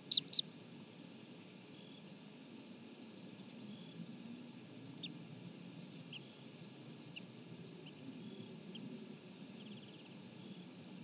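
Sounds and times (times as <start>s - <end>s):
eagle chick begging peeps: 0.0s - 0.4s.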